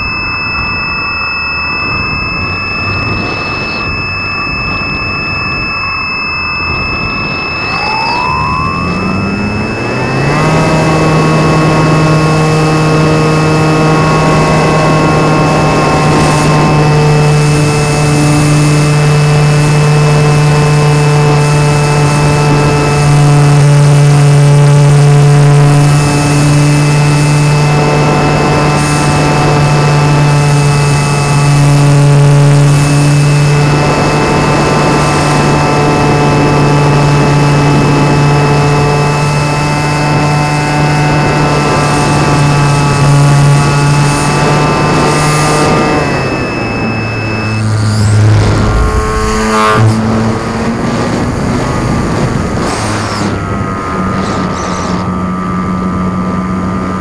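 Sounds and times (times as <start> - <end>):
model airplane motor drone: 0.0 - 57.0
air rushing past: 47.2 - 51.2.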